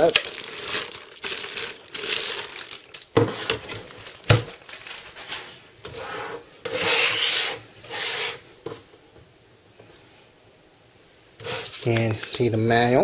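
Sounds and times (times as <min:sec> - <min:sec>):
plastic wrapping rustling: 0:00.0 - 0:05.7.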